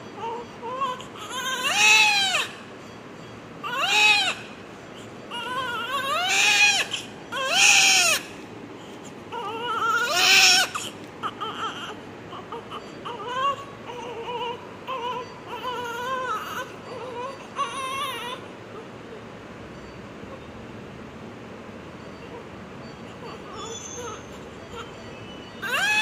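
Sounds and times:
baby crying: 0.1 - 2.6, 3.6 - 8.4, 9.3 - 18.5, 22.3 - 25.0, 25.6 - 26.0
baby whimpering: 9.0 - 18.9, 22.3 - 25.0.

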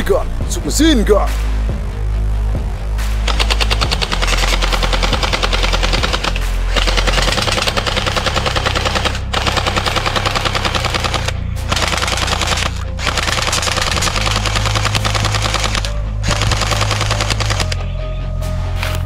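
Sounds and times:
toy machine gun firing bursts: 3.3 - 17.8.

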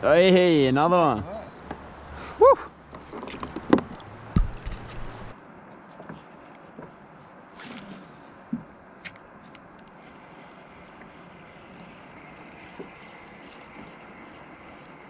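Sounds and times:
wind: 0.0 - 15.0
hand knocking on camera: 4.4 - 4.7
brief rustle: 4.4 - 6.8, 7.5 - 10.0
water hiss: 7.6 - 9.1, 9.9 - 15.0.

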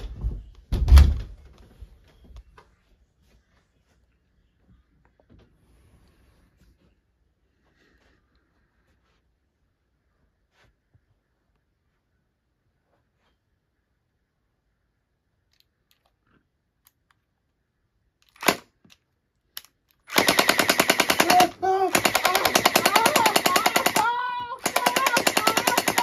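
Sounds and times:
gel-ball blaster firing bursts: 20.1 - 26.0.

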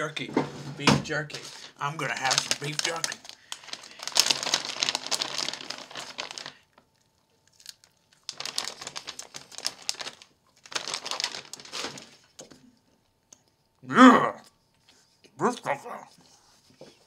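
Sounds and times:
plastic bag crinkling: 1.3 - 12.6.

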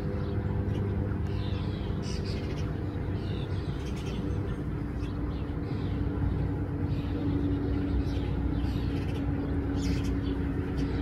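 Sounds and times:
sparrows chirping: 0.0 - 11.0
steady low hum: 0.0 - 11.0.

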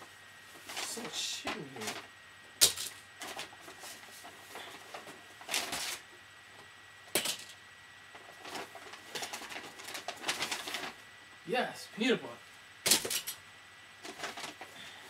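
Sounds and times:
paper bag rustling: 0.5 - 2.1, 3.2 - 6.1, 8.2 - 11.0, 14.0 - 15.0.

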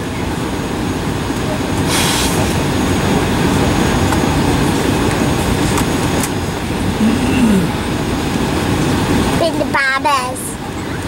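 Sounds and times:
aircraft cabin rumble: 0.0 - 11.0
short hiss: 1.9 - 2.5.

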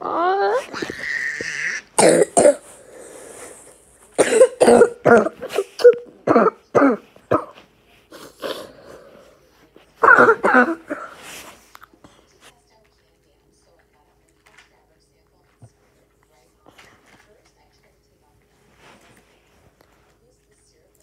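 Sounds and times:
child coughing: 0.6 - 2.7, 4.2 - 8.7, 10.0 - 11.2.

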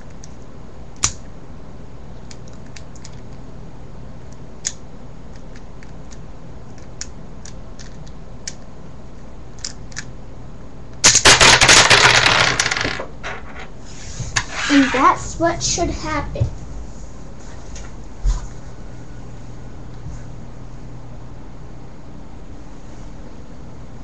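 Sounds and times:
puzzle cube turning clicks: 4.6 - 8.6
plastic pieces clattering onto wood: 11.1 - 13.7.

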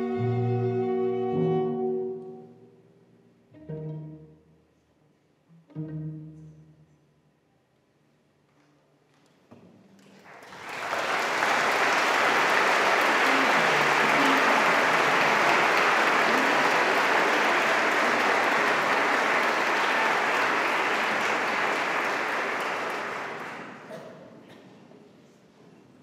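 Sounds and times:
audience applauding: 10.0 - 24.1.

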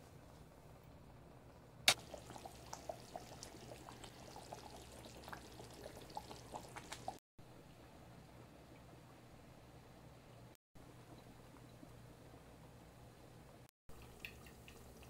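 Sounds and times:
curry bubbles popping: 1.9 - 7.2.

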